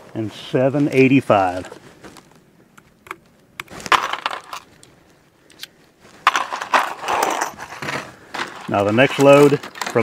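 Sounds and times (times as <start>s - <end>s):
metal cartridge cases clinking: 3.0s - 4.9s, 5.5s - 10.0s.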